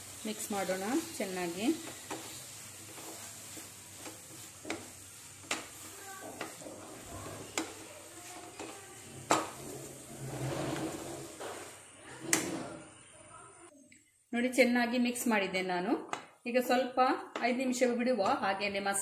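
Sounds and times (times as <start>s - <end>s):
wooden spatula scraping a pan: 0.0s - 12.9s
soft sizzle: 0.0s - 19.0s.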